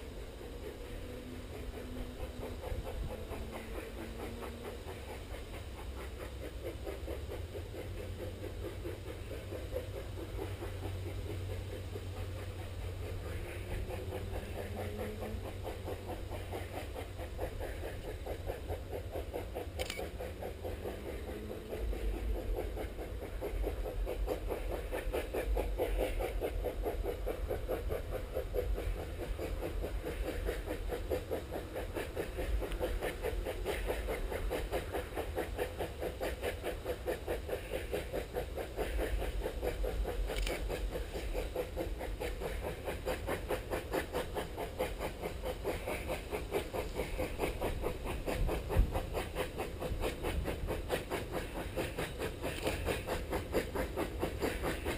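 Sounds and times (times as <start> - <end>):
steam locomotive chuffing: 0.0 - 54.9.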